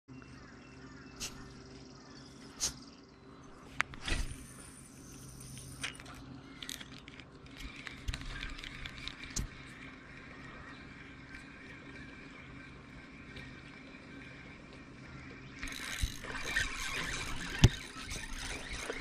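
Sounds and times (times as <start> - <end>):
steady low hum: 0.1 - 19.0
small reel ticks: 3.8 - 19.0
fishing reel handling clicks: 5.2 - 9.5, 15.6 - 19.0.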